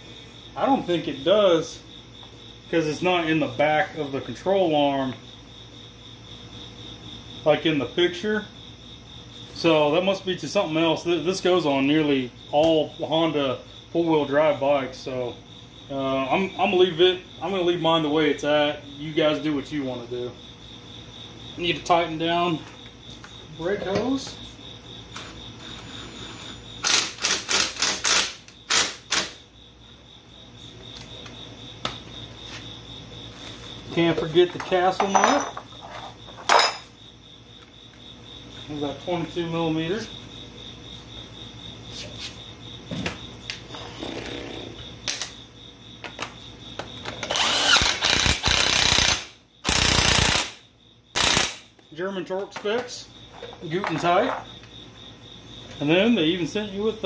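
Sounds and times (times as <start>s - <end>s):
cordless power tool bursts: 25.9s - 29.4s, 47.2s - 50.6s, 51.2s - 51.7s.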